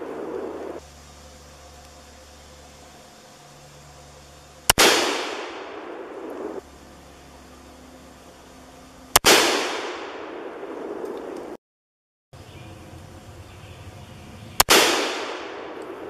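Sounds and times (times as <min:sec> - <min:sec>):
pistol shots echoing: 0:04.7 - 0:06.2, 0:09.2 - 0:10.6, 0:14.6 - 0:16.0.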